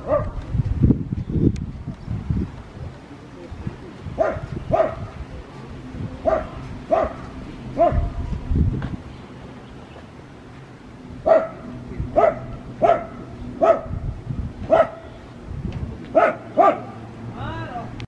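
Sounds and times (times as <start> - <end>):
dog barking: 0.0 - 0.4, 4.2 - 5.1, 6.2 - 8.2, 11.2 - 14.0, 14.7 - 15.0, 16.1 - 17.0.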